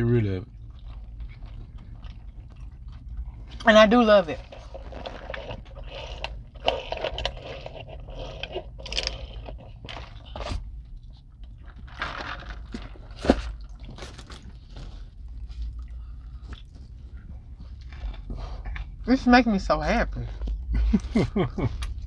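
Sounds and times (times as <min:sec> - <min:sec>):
people chewing food: 0:00.0 - 0:22.0
slurping through straws: 0:04.4 - 0:09.6.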